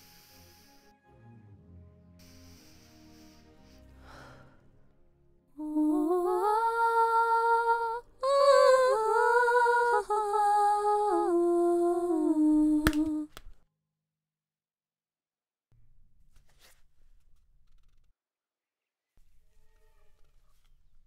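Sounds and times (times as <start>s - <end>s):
person humming a tune: 5.6s - 13.3s.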